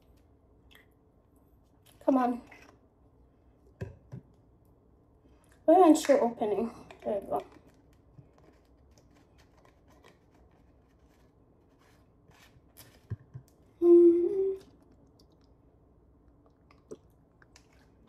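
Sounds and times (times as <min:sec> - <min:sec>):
woman humming: 0:13.8 - 0:14.7.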